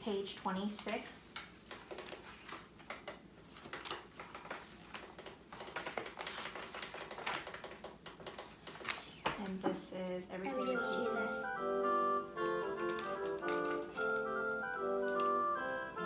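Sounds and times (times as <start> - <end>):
book pages rustling: 0.7 - 9.6, 12.8 - 14.3.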